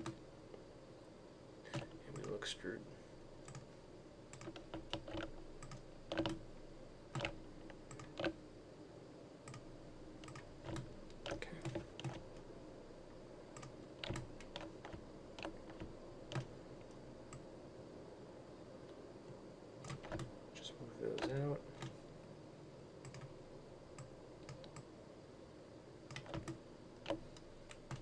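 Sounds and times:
keyboard and mouse clicking: 0:00.0 - 0:00.2, 0:01.7 - 0:02.4, 0:03.4 - 0:03.7, 0:04.3 - 0:06.4, 0:07.1 - 0:08.4, 0:09.4 - 0:09.6, 0:10.2 - 0:12.4, 0:13.6 - 0:17.5, 0:19.8 - 0:20.3, 0:21.1 - 0:22.0, 0:23.0 - 0:23.3, 0:23.9 - 0:24.9, 0:26.1 - 0:28.0
faint steady hum: 0:00.0 - 0:28.0.

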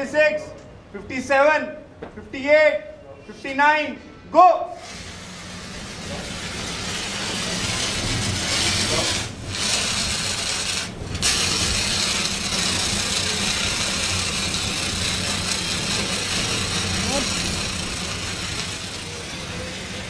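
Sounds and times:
fire extinguisher hissing: 0:04.8 - 0:20.0.

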